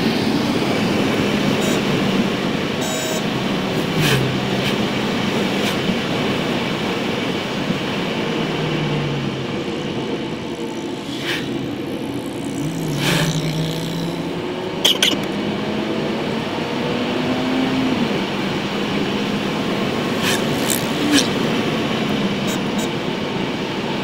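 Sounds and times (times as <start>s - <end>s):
car road and engine noise: 0.0s - 24.0s
low hum: 3.2s - 14.8s
short sharp sounds: 3.7s - 6.1s.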